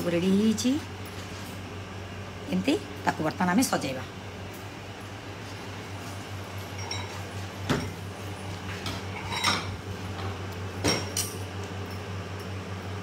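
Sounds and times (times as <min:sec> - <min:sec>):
low fan hum: 0:00.0 - 0:13.0
ceramic dishes clinking on metal: 0:06.8 - 0:07.9, 0:09.2 - 0:09.8.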